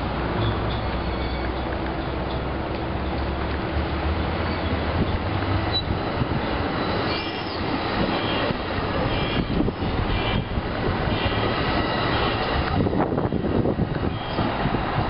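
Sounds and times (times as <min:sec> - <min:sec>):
train wheels rumbling on rails: 0:00.0 - 0:15.0
high-pitched wheel squeals: 0:00.4 - 0:01.7, 0:06.8 - 0:10.5.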